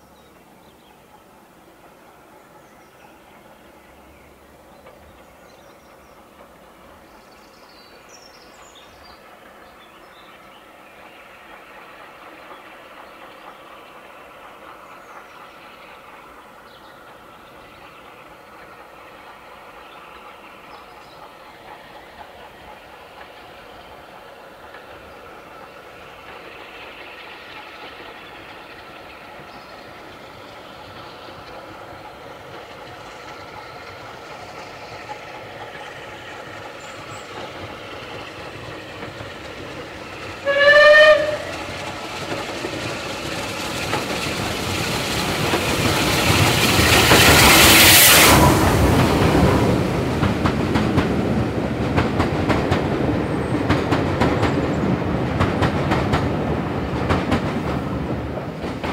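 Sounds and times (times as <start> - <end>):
steam locomotive passing: 0.0 - 58.9
steam whistle blast: 40.4 - 41.5.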